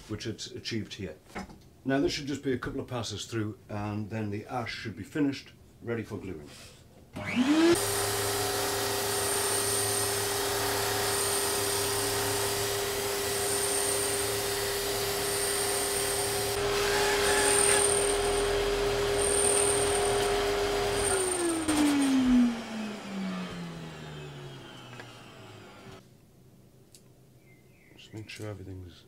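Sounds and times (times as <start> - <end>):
drum sander motor humming: 7.2 - 26.0
motor winding down: 7.2 - 26.0
wood sanding noise: 7.3 - 26.0.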